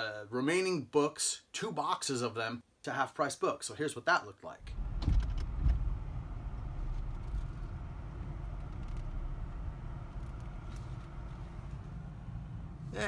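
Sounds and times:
car bump: 0:04.6 - 0:12.0
car engine and road rumble: 0:04.6 - 0:13.0.

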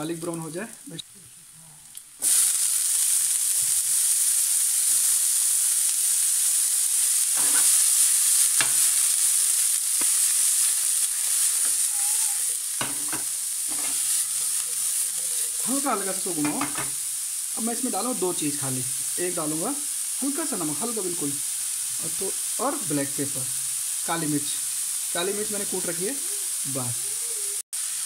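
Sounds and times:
vegetables sizzling in hot oil: 0:00.0 - 0:28.0
knocks in frying pan: 0:08.6 - 0:08.8, 0:12.8 - 0:14.0, 0:16.4 - 0:17.0.

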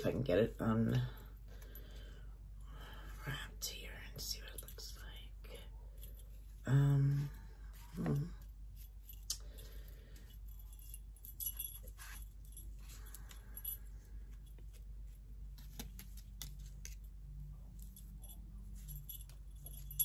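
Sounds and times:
small bells jingling: 0:03.6 - 0:14.6, 0:17.2 - 0:20.0.

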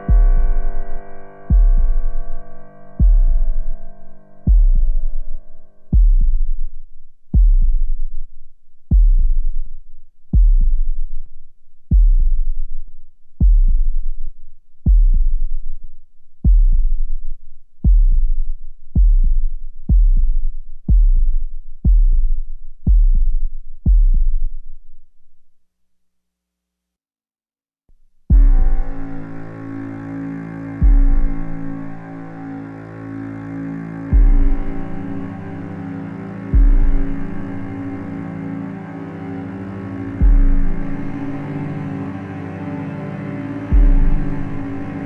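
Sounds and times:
held synthesizer chord: 0:00.0 - 0:06.6, 0:28.3 - 0:45.0
deep bass thud pulse: 0:00.0 - 0:06.7, 0:07.4 - 0:08.1, 0:08.9 - 0:09.6, 0:10.4 - 0:11.0, 0:11.9 - 0:12.6, 0:13.4 - 0:14.1, 0:14.9 - 0:15.6, 0:16.5 - 0:17.2, 0:17.9 - 0:24.4, 0:28.3 - 0:29.4, 0:30.8 - 0:32.0, 0:34.1 - 0:35.3, 0:36.6 - 0:37.7, 0:40.2 - 0:41.1, 0:43.7 - 0:44.8.

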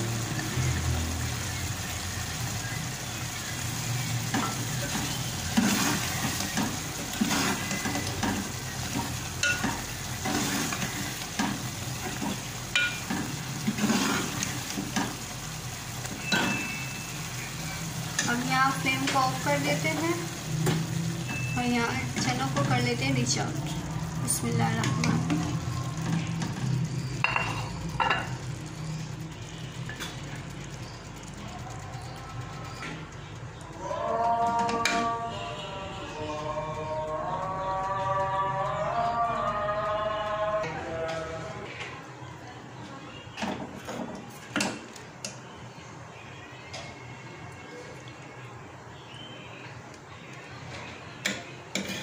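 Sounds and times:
ladle scraping metal pot: 0:04.3 - 0:15.1.

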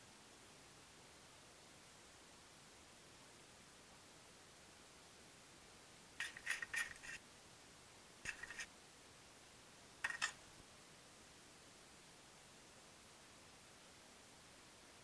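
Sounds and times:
small hard parts clicking and rattling: 0:06.2 - 0:07.2, 0:08.3 - 0:08.7, 0:10.0 - 0:10.4.

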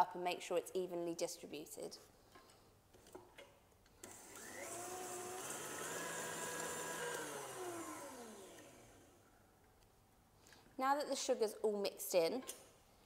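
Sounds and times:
stand mixer motor whisking: 0:04.1 - 0:09.1.

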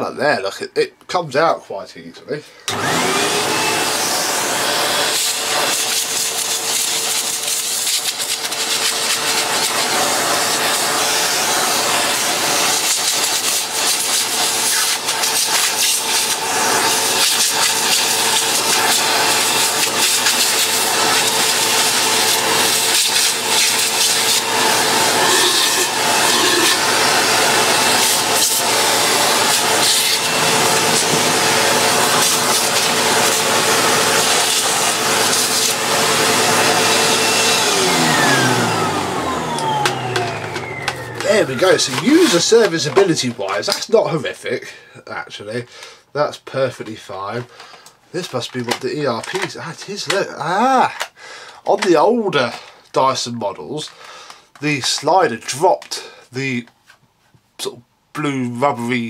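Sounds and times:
vacuum cleaner whining: 0:02.5 - 0:44.0, 0:47.1 - 0:52.9.

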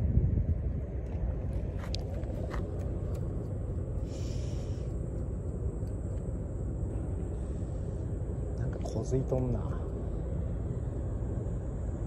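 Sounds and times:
low rumble of harbour ambience: 0:00.0 - 0:12.0.

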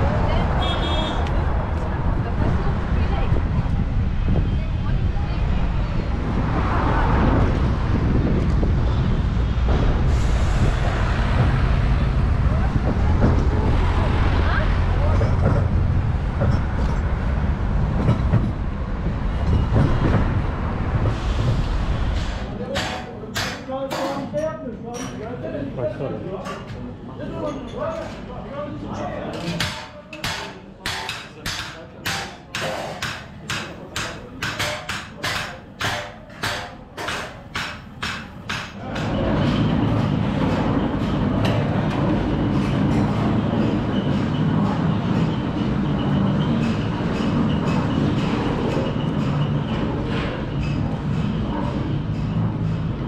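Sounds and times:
heavy street traffic rumble: 0:00.0 - 0:53.0
hammers striking cymbals: 0:29.6 - 0:39.7.

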